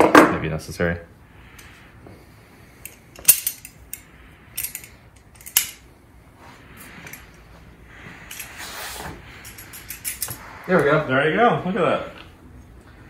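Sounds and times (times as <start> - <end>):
metal tools clicking on metal: 2.8 - 5.8, 9.4 - 10.4
handling noise: 6.6 - 11.0.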